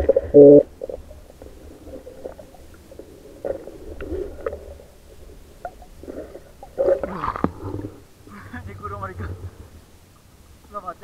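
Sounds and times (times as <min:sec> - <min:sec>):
underwater gurgling and bubbling: 0:00.0 - 0:08.2
low underwater rumble: 0:00.0 - 0:10.6.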